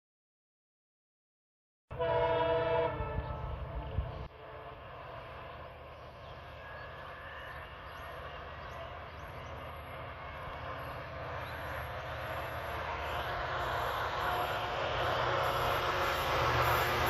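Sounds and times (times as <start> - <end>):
diesel locomotive engine drone: 1.9 - 17.0.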